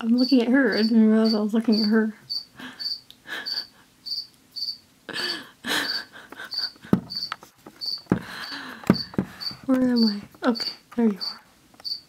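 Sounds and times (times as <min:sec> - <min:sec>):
cricket chirping: 0:00.2 - 0:04.8, 0:05.8 - 0:10.2, 0:11.2 - 0:12.0.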